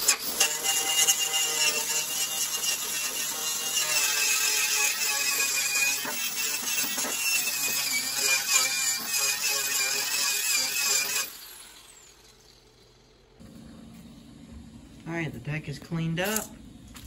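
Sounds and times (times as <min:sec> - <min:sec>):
angle grinder grinding steel: 0:00.0 - 0:13.4.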